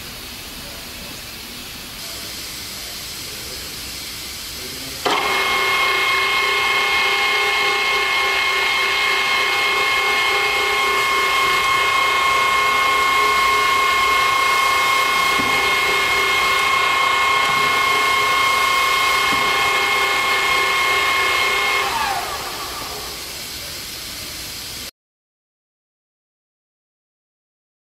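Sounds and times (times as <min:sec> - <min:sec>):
steady hiss: 0:00.0 - 0:05.1, 0:09.6 - 0:24.9
drill press whining: 0:04.9 - 0:24.8.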